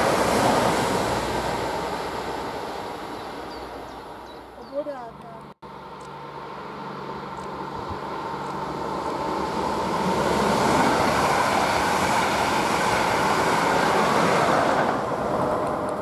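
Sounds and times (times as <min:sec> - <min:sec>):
train passing on rails: 0:00.0 - 0:05.1, 0:05.7 - 0:16.0.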